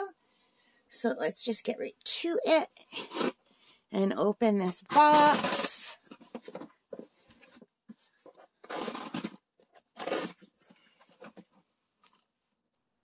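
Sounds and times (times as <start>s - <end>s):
packing tape tearing: 3.0s - 3.4s, 4.8s - 6.2s, 8.6s - 10.5s
cardboard rustling: 4.7s - 12.3s.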